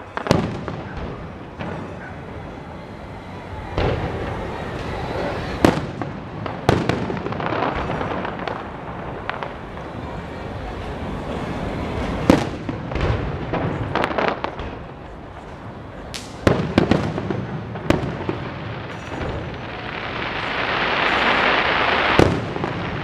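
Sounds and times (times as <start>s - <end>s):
fireworks bursting with sharp bangs: 0.0s - 23.0s.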